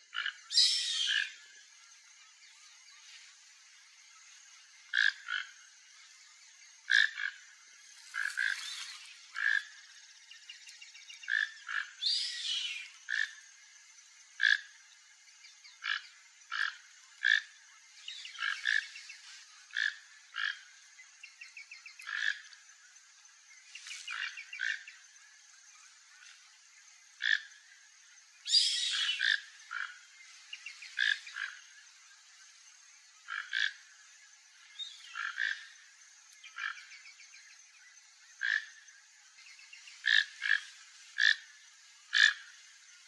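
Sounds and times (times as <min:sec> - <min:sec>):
bird song: 0:00.0 - 0:43.0
toucan calling: 0:00.2 - 0:01.4, 0:11.2 - 0:13.3, 0:28.4 - 0:29.9.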